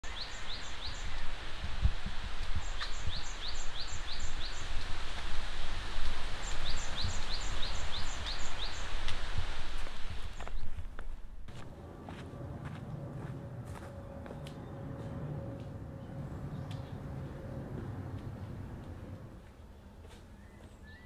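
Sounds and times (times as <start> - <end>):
wind through foliage: 0.0 - 21.0
wind rumble on microphone: 0.5 - 19.5
bird chirping: 6.4 - 8.9, 13.8 - 19.3, 20.3 - 21.0.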